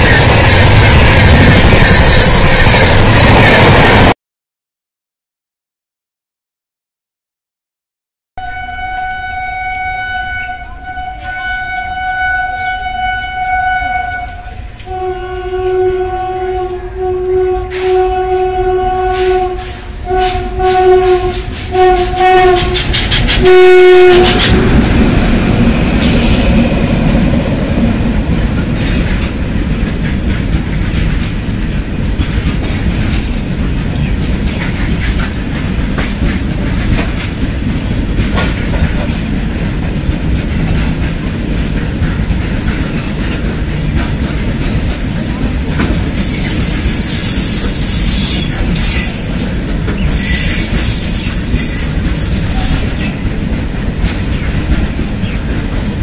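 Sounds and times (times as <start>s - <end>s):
freight train rumbling past: 0.0s - 4.2s, 8.4s - 56.0s
locomotive horn blasts: 8.4s - 24.7s
high wheel squeal: 46.0s - 52.8s.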